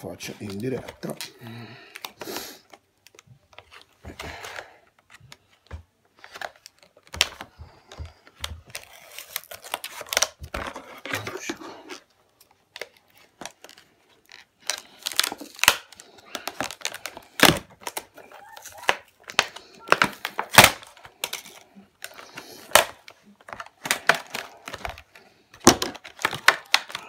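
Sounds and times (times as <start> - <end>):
packaging crinkling: 6.2 - 27.0
scissors cutting hard plastic: 6.5 - 12.0, 12.8 - 27.0.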